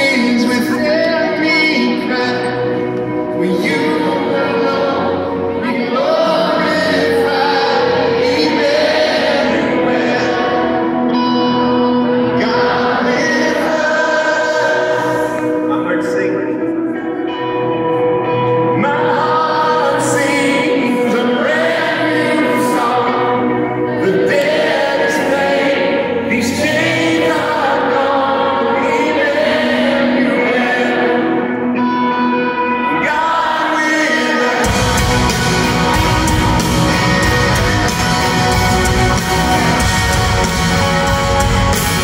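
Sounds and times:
man singing: 0.0s - 11.2s, 12.1s - 16.6s, 18.5s - 31.9s, 32.5s - 42.0s
electric guitar: 0.0s - 42.0s
sustained chords: 0.0s - 42.0s
drums: 34.4s - 42.0s.

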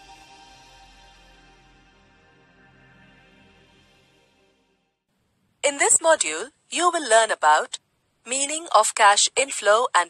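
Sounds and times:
soft music of sustained tones: 0.0s - 5.0s.

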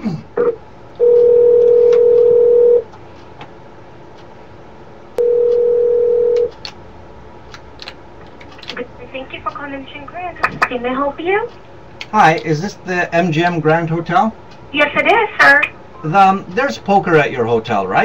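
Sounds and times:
telephone ringback tone: 1.0s - 2.8s, 5.2s - 6.5s.

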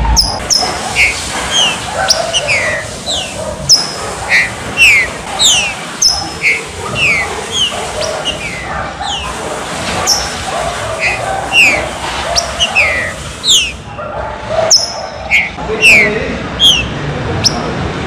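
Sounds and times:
bird whistling falling notes: 0.2s - 9.3s, 11.0s - 13.8s, 14.7s - 16.9s.

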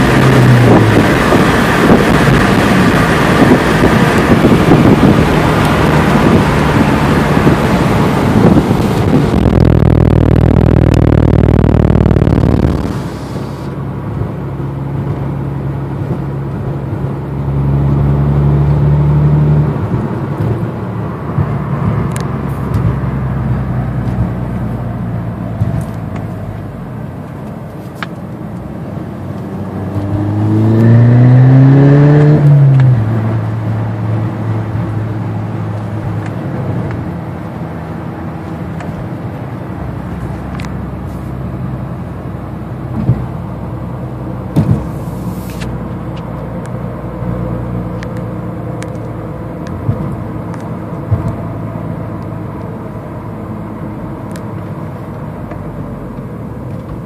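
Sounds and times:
wind noise: 0.0s - 13.7s
car engine and exhaust: 0.0s - 57.0s.

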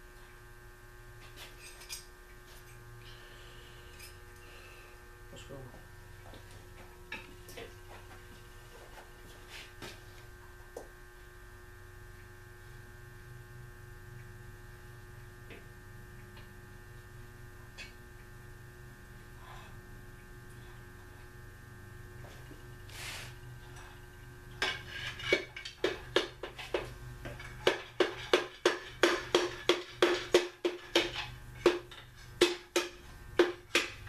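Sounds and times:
steady electrical hum: 0.0s - 34.0s.

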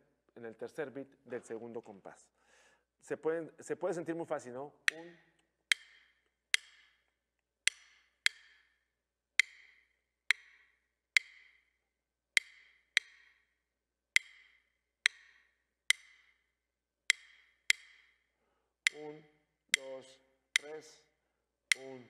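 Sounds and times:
drumsticks clicking together: 5.7s - 7.1s, 7.7s - 8.8s, 9.4s - 10.6s, 11.2s - 11.7s, 12.4s - 13.4s, 14.2s - 16.4s, 17.1s - 18.2s, 19.8s - 20.0s, 21.7s - 22.0s.

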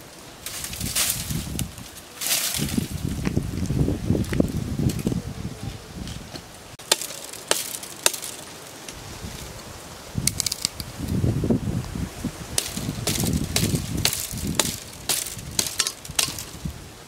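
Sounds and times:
branches scraping through brush: 0.0s - 17.0s
dry sticks snapping: 0.4s - 3.0s, 6.4s - 9.0s, 10.2s - 10.9s, 12.6s - 16.6s.

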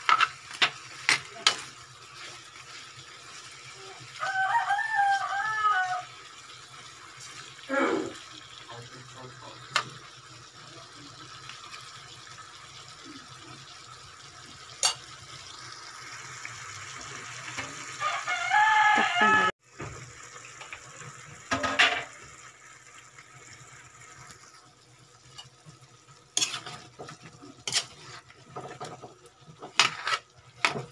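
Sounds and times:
food simmering with faint hiss: 0.0s - 30.9s
rooster crowing: 4.1s - 6.2s, 18.0s - 19.5s.

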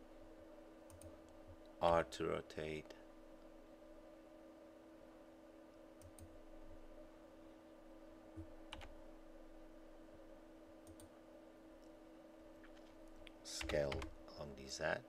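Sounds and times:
steady low hum: 0.0s - 15.0s
keyboard and mouse clicks: 0.9s - 1.4s, 6.0s - 6.3s, 10.8s - 11.1s.

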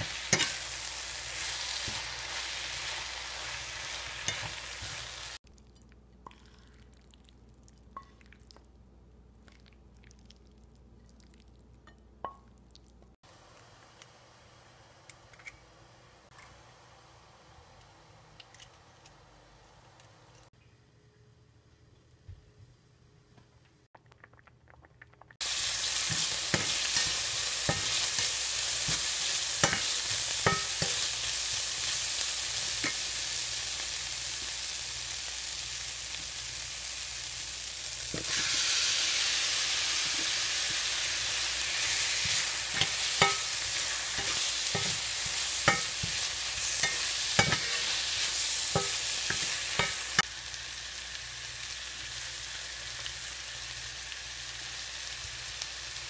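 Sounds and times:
metal spatula scraping a pan: 0.0s - 0.8s, 41.8s - 50.2s
onions sizzling in a pan: 0.0s - 5.4s, 25.4s - 56.0s.

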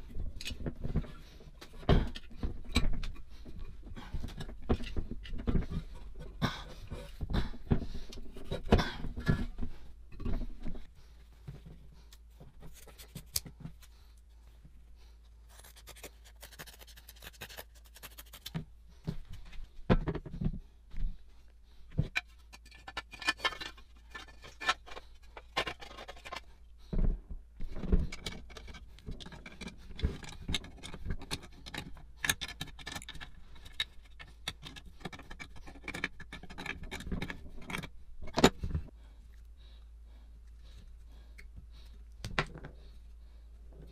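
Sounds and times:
metal parts clinking and scraping: 22.1s - 26.5s, 28.1s - 38.6s.

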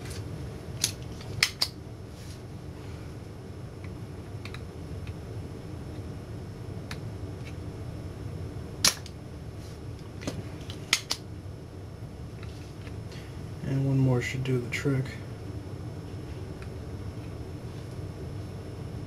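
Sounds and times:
steady low hum: 0.0s - 19.0s
desoldering pump snap: 0.8s - 1.8s, 8.8s - 9.2s, 10.2s - 11.2s.

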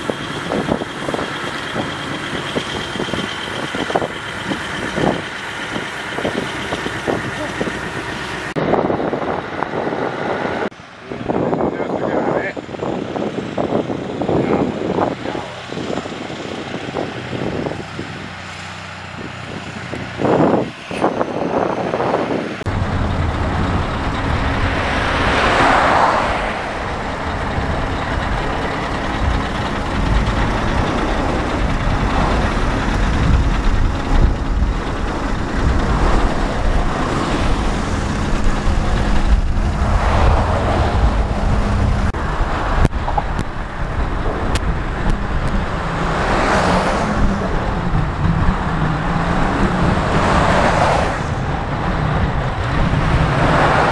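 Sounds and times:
road traffic tyre noise: 0.0s - 53.9s
truck engine driving past: 22.6s - 53.9s.

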